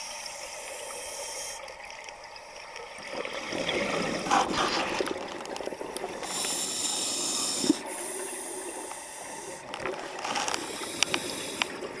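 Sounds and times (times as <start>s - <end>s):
bubbles: 2.7s - 6.4s.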